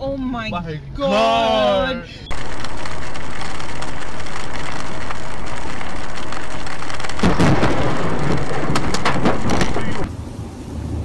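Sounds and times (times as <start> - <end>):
thunderclap: 2.3 - 10.5
heavy rain on car: 2.3 - 11.0.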